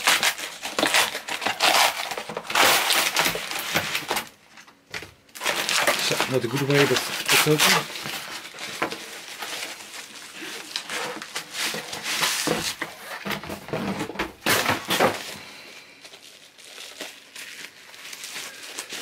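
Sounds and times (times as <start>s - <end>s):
bubble wrap crinkling: 0.0s - 4.7s, 5.3s - 19.0s
cardboard rustling and scraping: 5.4s - 19.0s.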